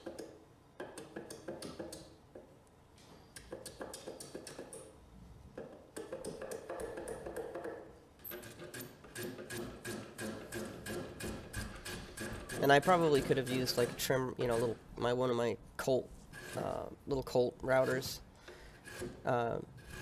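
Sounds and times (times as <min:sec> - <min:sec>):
block plane scraping wood: 0:08.4 - 0:14.8, 0:16.2 - 0:16.9, 0:17.7 - 0:20.0.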